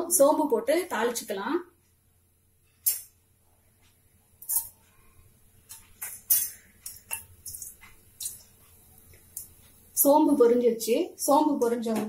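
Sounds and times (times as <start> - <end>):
seeds spluttering in hot oil: 4.4 - 4.8, 5.7 - 9.6.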